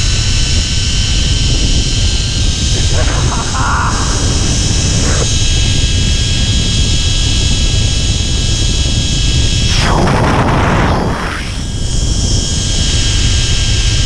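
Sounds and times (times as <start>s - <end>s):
wind buffeting microphone: 0.0s - 14.0s
high whining tones: 1.4s - 7.0s
hissing rush: 2.3s - 6.5s, 9.5s - 12.0s.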